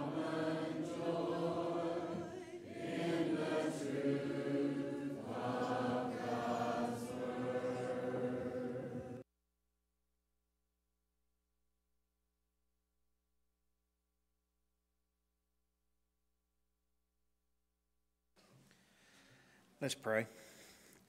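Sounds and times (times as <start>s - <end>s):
congregation singing a hymn: 0.0s - 9.2s.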